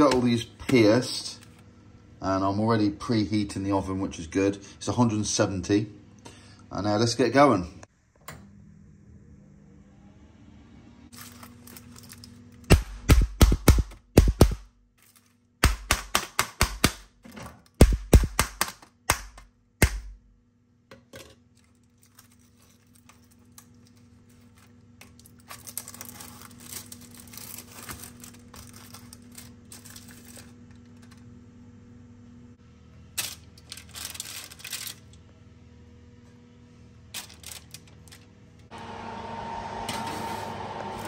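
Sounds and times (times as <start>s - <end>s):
low steady hum: 0.0s - 41.0s
plastic packaging crinkling: 11.1s - 12.7s, 21.6s - 31.2s, 33.2s - 35.2s, 37.1s - 38.3s.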